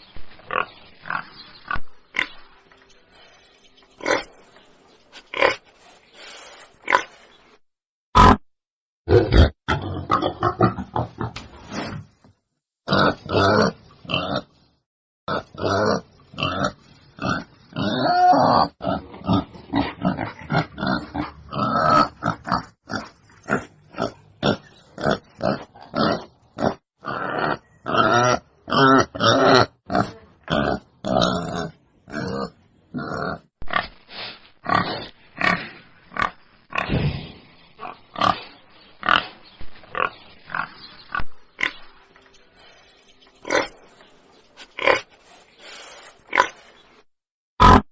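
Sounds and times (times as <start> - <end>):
wild boar grunting: 15.3 - 33.9, 47.6 - 47.8.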